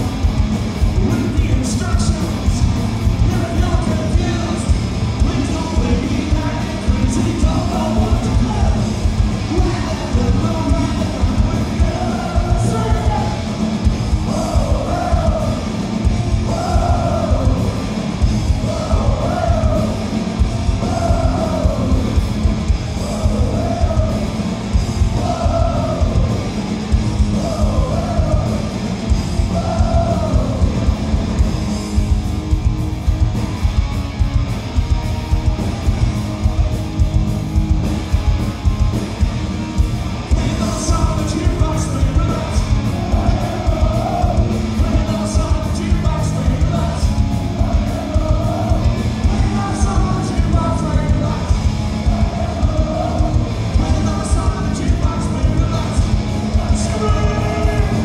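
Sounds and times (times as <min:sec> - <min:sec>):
bass guitar: 0:00.0 - 0:58.0
distorted electric guitars: 0:00.0 - 0:58.0
drums: 0:00.0 - 0:58.0
person singing: 0:40.3 - 0:58.0.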